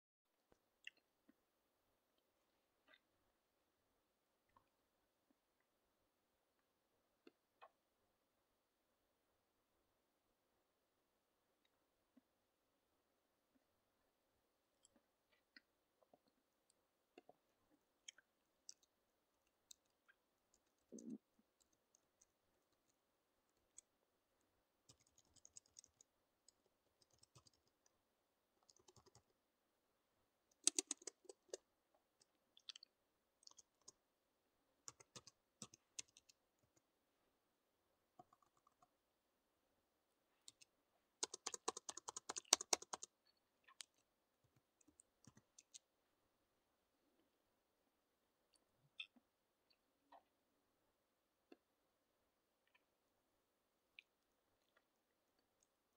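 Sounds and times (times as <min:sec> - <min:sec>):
laptop keyboard typing: 0:24.9 - 0:27.8, 0:28.6 - 0:29.4, 0:30.6 - 0:31.6, 0:34.9 - 0:36.8, 0:41.2 - 0:43.1.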